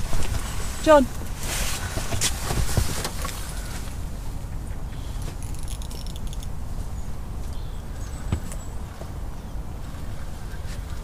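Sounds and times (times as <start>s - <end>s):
fishing reel clicking: 5.4s - 6.5s.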